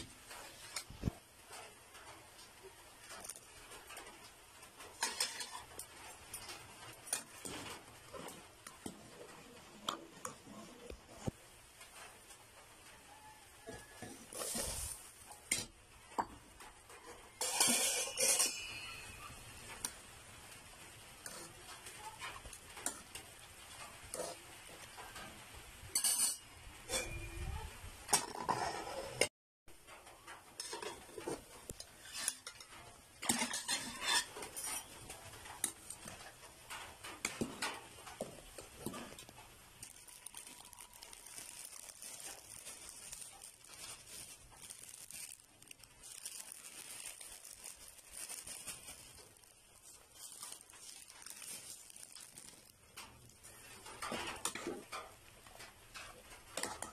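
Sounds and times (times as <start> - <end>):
plastic bag crinkling: 2.6 - 11.4, 13.0 - 15.7, 33.2 - 56.9
utensils clinking against pot: 4.9 - 11.0, 17.0 - 19.9, 21.2 - 27.4, 29.9 - 39.3.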